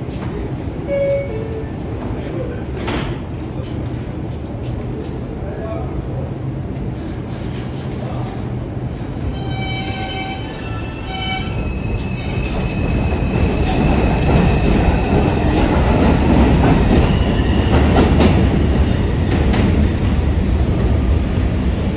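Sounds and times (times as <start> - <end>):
wheels rumbling on rail: 0.0 - 21.9
brief tone: 0.9 - 1.7.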